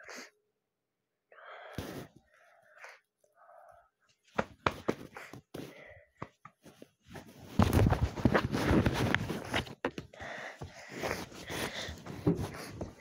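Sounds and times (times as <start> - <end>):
bedding rustling: 6.7 - 13.0.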